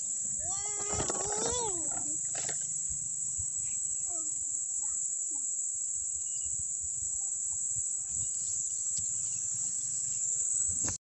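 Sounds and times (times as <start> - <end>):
insects buzzing: 0.0 - 11.0.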